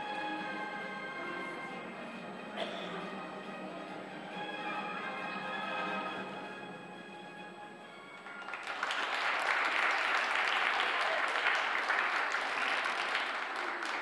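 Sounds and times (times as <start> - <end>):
backing music: 0.0 - 9.2
audience applauding: 8.1 - 14.0.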